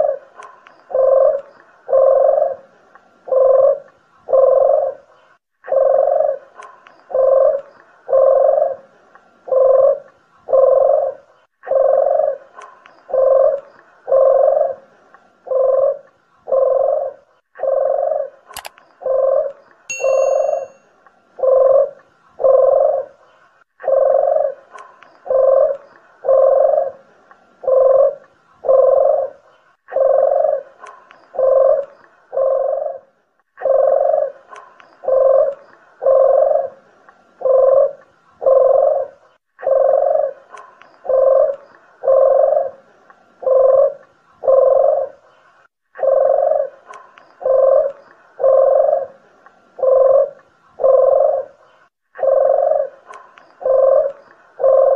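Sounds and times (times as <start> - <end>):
doves cooing: 0.0 - 20.7, 21.4 - 54.9
sharp click: 18.5 - 18.8.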